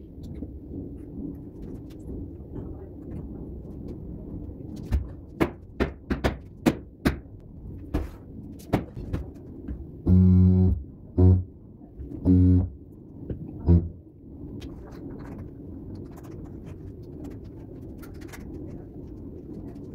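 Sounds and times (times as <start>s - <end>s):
sharp knocks on ceramic tile: 5.4s - 7.2s
tile vibrator buzzing: 10.0s - 11.5s, 12.2s - 12.8s, 13.6s - 14.0s.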